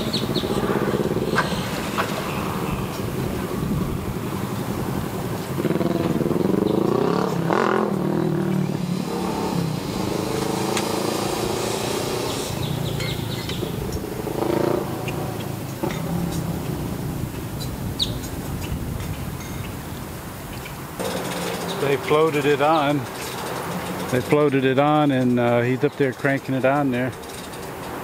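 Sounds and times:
engine revving: 0.0s - 17.3s, 21.0s - 25.8s.

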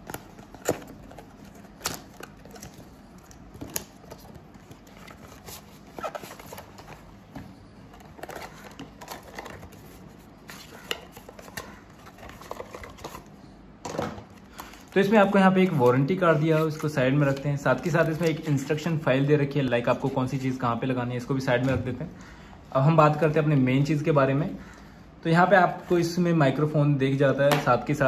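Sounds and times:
paper crinkling: 0.0s - 7.2s, 7.9s - 13.3s.

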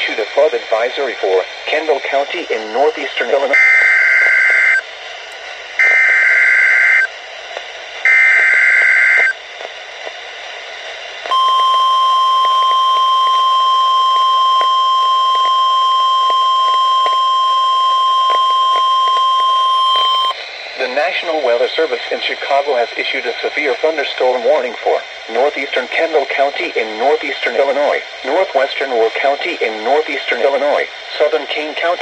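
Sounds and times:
steady warning alarm tone: 2.2s - 4.8s, 5.8s - 7.1s, 8.1s - 9.3s, 11.3s - 20.4s.

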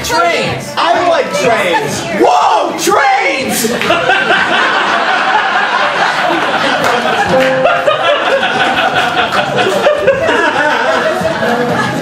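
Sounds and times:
audience laughing: 3.6s - 12.0s
music playing: 7.2s - 12.0s.

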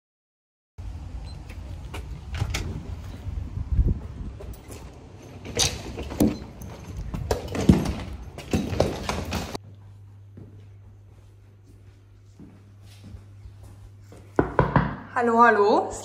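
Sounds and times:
knocks and bumps: 4.3s - 9.6s.

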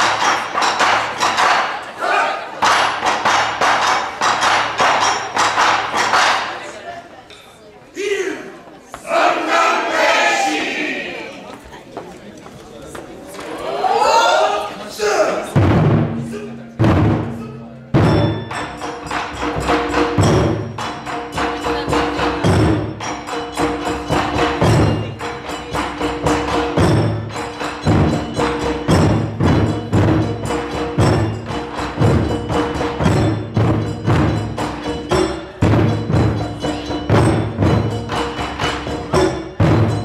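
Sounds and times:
stick strikes on drums: 0.0s - 2.0s, 2.6s - 7.4s, 15.5s - 40.0s
deep drum hits: 15.6s - 18.5s.

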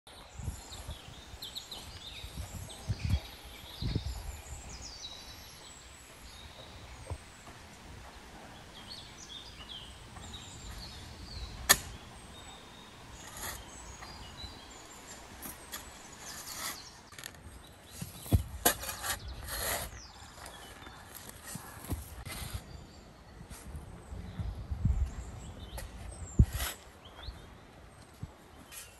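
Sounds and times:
small birds chirping: 0.1s - 28.9s
shovel digging sandy soil: 10.3s - 20.6s, 26.4s - 27.0s.

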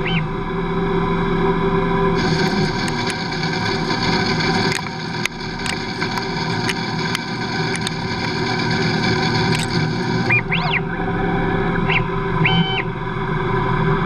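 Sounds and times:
lathe machine whine: 0.3s - 14.0s
sharp ticks: 4.5s - 10.0s.

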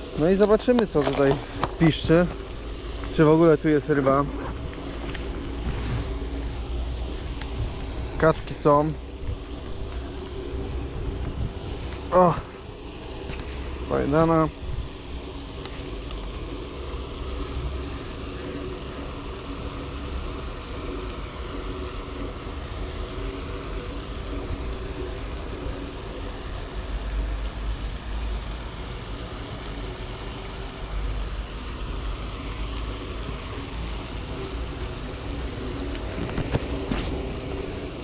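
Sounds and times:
distant traffic hum: 0.0s - 38.0s
wind buffeting microphone: 4.5s - 13.2s.

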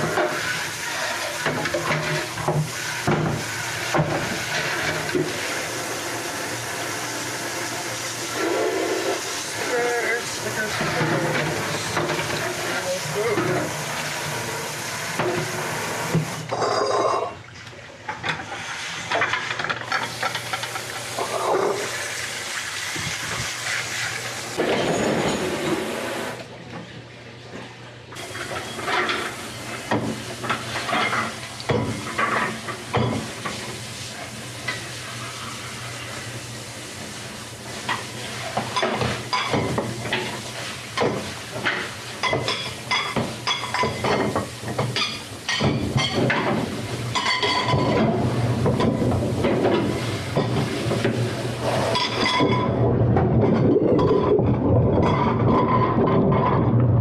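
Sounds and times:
dishes and utensils clinking: 0.0s - 5.3s, 24.6s - 26.0s, 28.2s - 33.6s, 37.9s - 56.6s
running water: 0.0s - 56.1s.

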